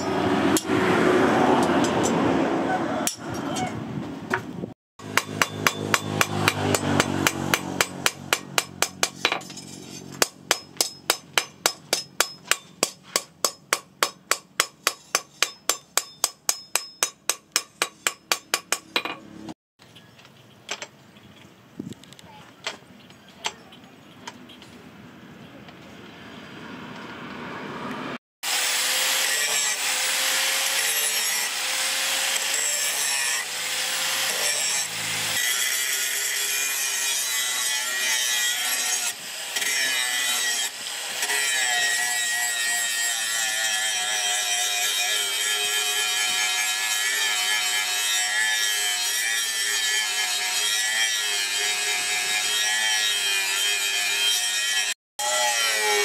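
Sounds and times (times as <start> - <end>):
angle grinder grinding steel: 5.0 - 19.2, 28.5 - 56.0.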